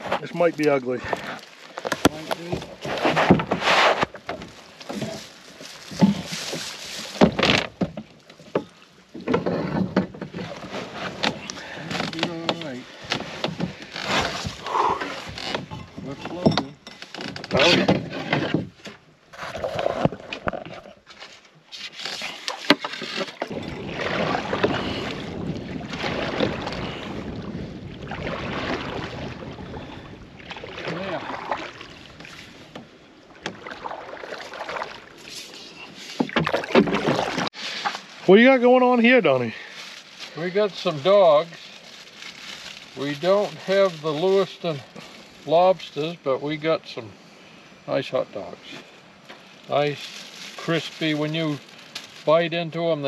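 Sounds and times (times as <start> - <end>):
rustling: 0.0 - 16.2, 34.3 - 46.0, 48.7 - 53.0
paddle pulling through water: 0.0 - 16.4, 17.0 - 53.0
water splashing along hull: 0.0 - 53.0.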